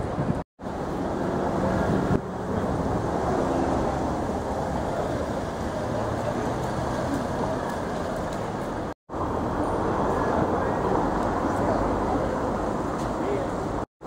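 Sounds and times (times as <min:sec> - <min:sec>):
wind on microphone: 0:00.0 - 0:00.4
city street traffic: 0:00.0 - 0:13.9.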